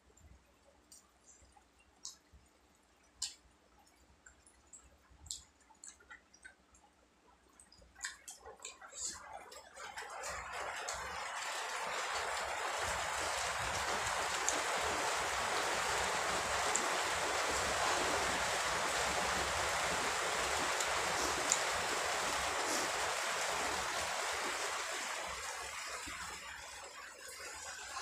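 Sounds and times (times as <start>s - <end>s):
rain falling: 8.0s - 28.0s.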